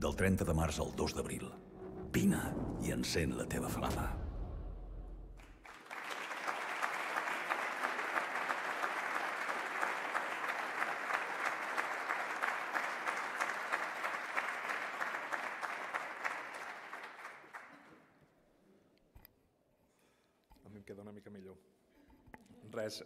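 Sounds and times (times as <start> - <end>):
audience applauding: 5.4 - 18.1.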